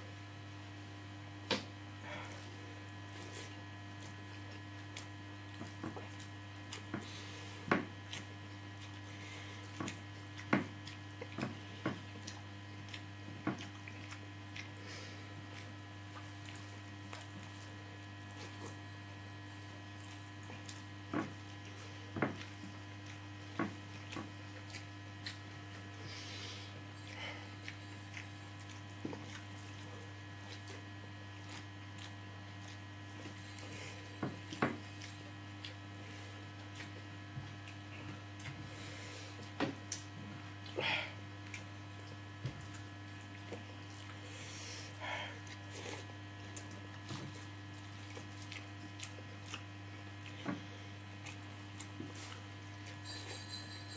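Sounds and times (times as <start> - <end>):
low electrical hum: 0.0 - 53.9
chewing smacks and clicks: 8.1 - 11.5, 12.2 - 14.8, 23.9 - 25.8, 27.0 - 30.8, 31.4 - 33.7, 34.4 - 35.8, 39.4 - 40.8, 41.4 - 44.2, 45.4 - 50.4, 51.0 - 53.0.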